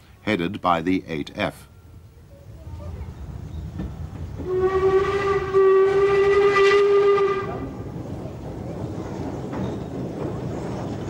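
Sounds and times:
train rumbling: 0.0s - 11.0s
steam locomotive whistle: 4.4s - 7.7s.

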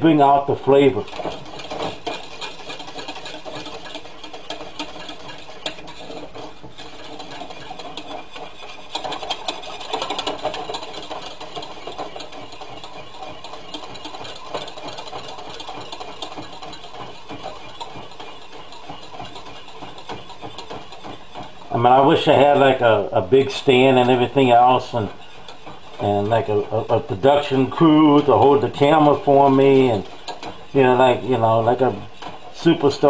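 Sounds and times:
spoon scraping metal saucepan: 0.0s - 33.0s.

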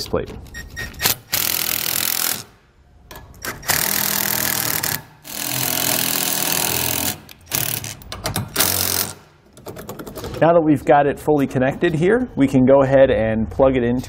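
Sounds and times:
impact driver driving screws into metal: 3.4s - 9.3s.

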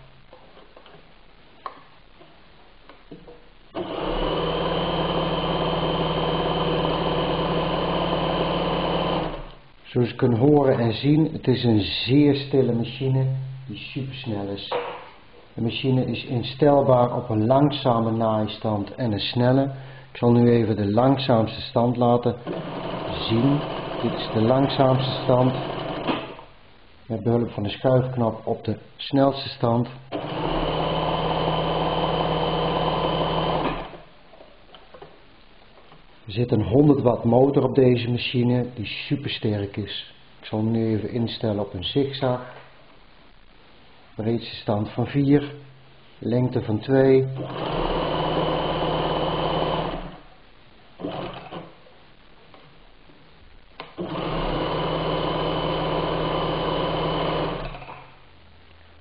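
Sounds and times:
sewing machine stitching: 3.8s - 9.6s, 22.4s - 26.5s, 30.1s - 34.0s, 47.4s - 50.2s, 51.0s - 51.8s, 53.9s - 58.1s.

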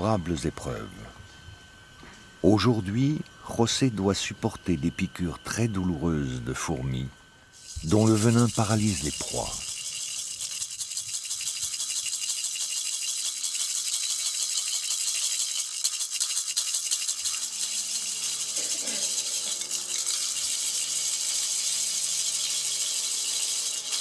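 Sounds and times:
rattle shaken: 7.6s - 24.0s.

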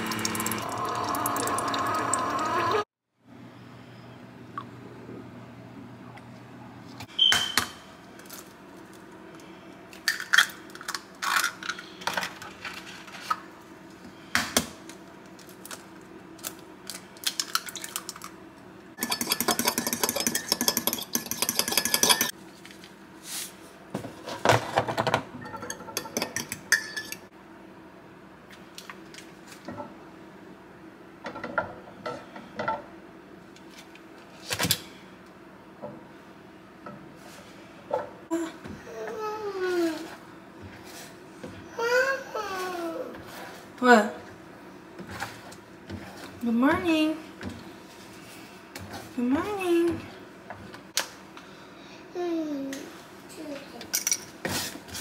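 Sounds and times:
cutlery clinking on ceramic: 19.0s - 22.3s
fork beating eggs in bowl: 19.0s - 22.3s.

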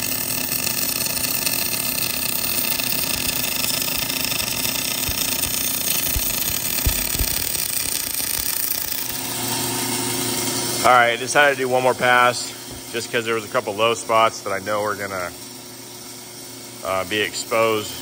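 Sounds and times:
welding arc hissing: 0.0s - 10.1s
faint low thumps: 6.1s - 7.6s.

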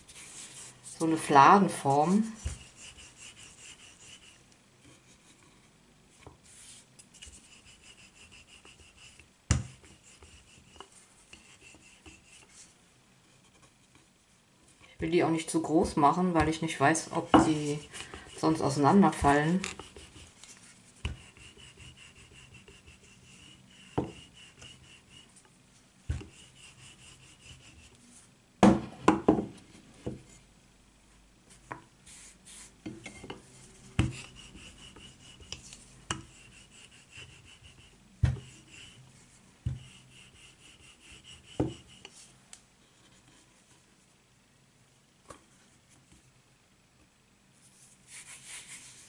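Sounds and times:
rolling pin rubbing on dough: 0.0s - 14.2s, 15.0s - 28.0s, 31.6s - 42.3s, 47.7s - 49.0s
wooden knocks and taps: 28.6s - 30.2s.

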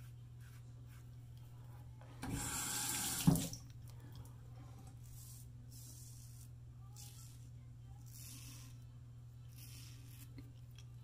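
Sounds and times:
sink tap running: 2.2s - 3.6s.

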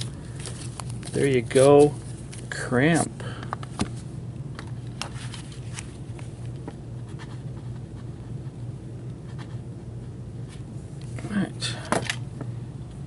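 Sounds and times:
hands rustling things on desk: 0.0s - 7.6s
low electrical hum: 0.0s - 13.0s.

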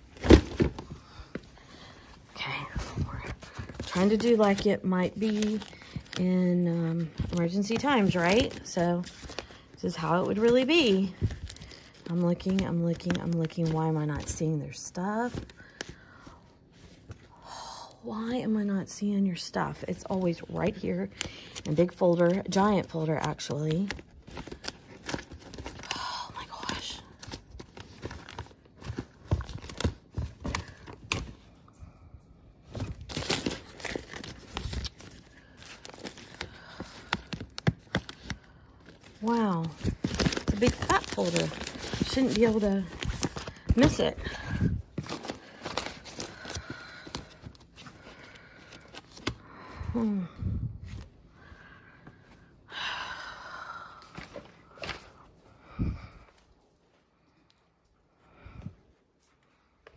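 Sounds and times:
papers and folders rustling: 0.0s - 17.3s, 19.6s - 32.0s, 32.6s - 50.0s, 54.0s - 57.6s
breathy sound: 43.4s - 56.5s.

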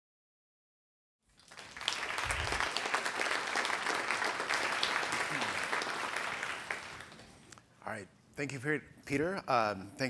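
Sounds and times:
audience applauding: 1.4s - 7.5s.

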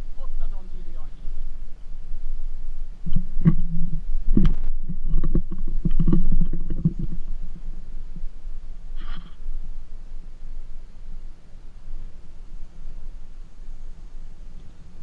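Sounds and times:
wind rumbling on microphone: 0.0s - 15.0s
camera pole knocking and rattling: 3.1s - 7.2s.

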